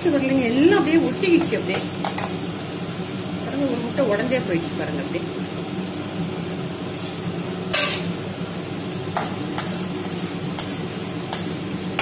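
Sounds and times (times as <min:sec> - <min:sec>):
spoon scraping steel pan: 0:09.2 - 0:12.0.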